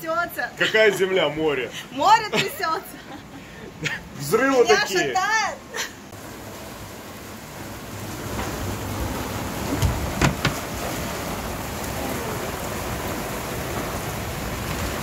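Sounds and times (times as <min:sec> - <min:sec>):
heavy rain pouring: 0:00.0 - 0:15.0
sharp knocks: 0:09.8 - 0:10.6.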